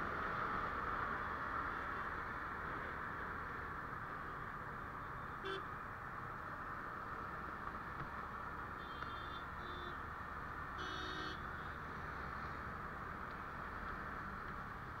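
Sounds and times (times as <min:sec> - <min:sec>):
wind and road noise: 0:00.0 - 0:15.0
vehicle horn beeps: 0:05.4 - 0:05.7, 0:08.8 - 0:10.0, 0:10.8 - 0:11.4.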